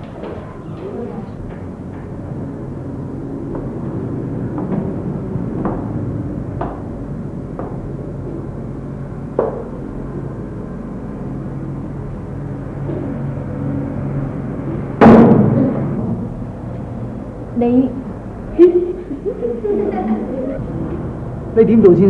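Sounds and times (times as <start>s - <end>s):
low background hum: 0.0s - 22.0s
footsteps on hard floor: 3.5s - 8.5s
loud sudden bang: 15.0s - 16.2s.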